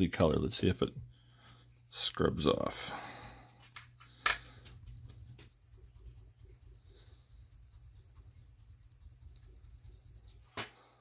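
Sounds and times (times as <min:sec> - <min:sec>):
thumb rubbing on metal: 0:03.9 - 0:10.5.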